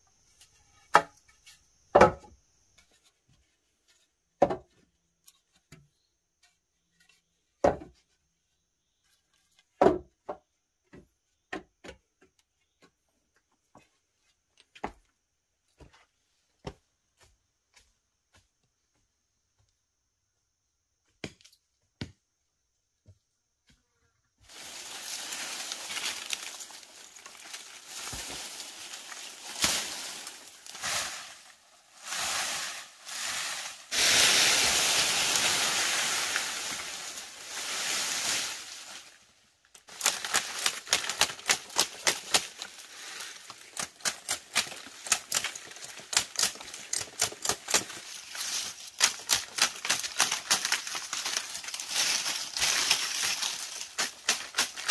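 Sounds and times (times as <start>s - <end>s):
bamboo branches rustling over leaves: 24.4s - 54.9s.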